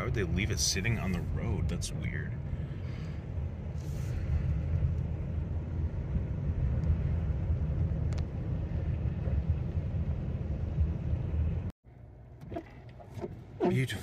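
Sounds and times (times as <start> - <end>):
car cabin rumble: 0.0 - 14.0.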